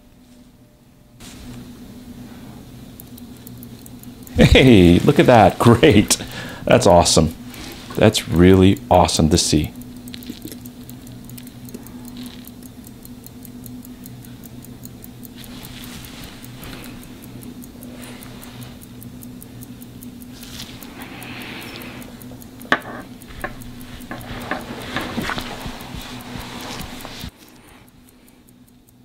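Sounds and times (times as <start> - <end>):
pocket watch ticking: 2.0 - 29.0
sharp clicks: 2.7 - 29.0.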